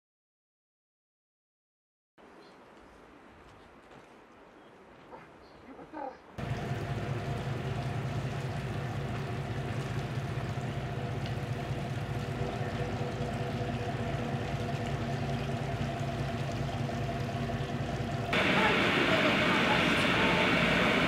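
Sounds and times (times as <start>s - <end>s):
boat engine throbbing: 6.4s - 21.0s
water wash: 6.4s - 21.0s.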